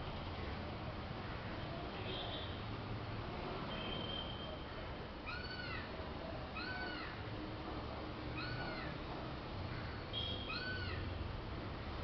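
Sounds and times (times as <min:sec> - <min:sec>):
animal high calls: 0:05.3 - 0:05.9.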